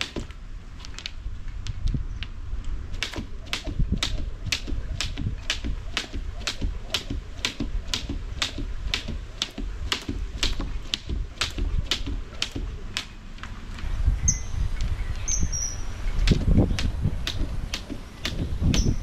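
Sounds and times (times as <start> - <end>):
skipping rope slapping ground: 0.0 - 13.7, 16.2 - 19.0
bird chirps: 14.1 - 17.0, 17.9 - 19.0.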